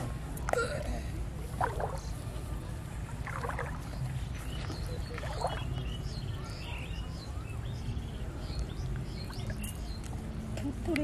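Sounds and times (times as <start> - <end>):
pond water splashing: 0.0 - 6.5.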